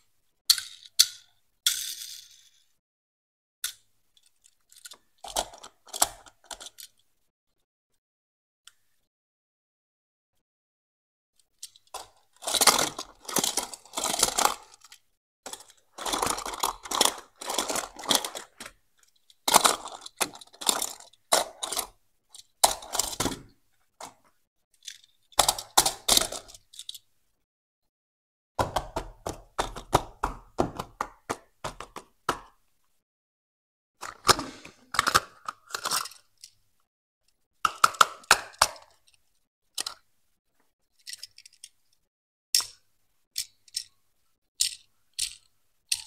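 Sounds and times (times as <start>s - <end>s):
toy car and boxes clicking: 0.5s - 2.7s, 3.6s - 7.0s, 11.5s - 27.1s, 28.6s - 32.6s, 34.0s - 36.6s, 37.7s - 40.0s, 40.9s - 42.0s, 42.6s - 42.8s, 43.4s - 43.9s, 44.6s - 46.0s.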